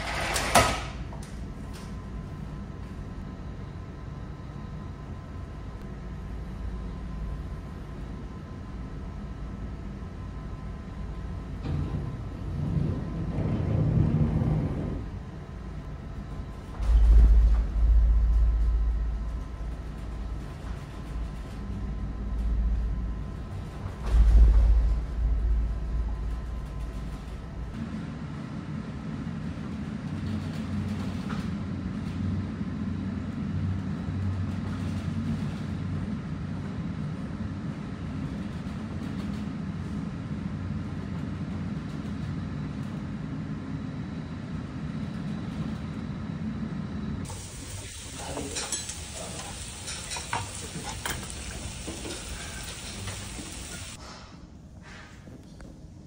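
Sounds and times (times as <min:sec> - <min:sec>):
ship engine drone: 0:01.4 - 0:29.3, 0:43.4 - 0:54.0.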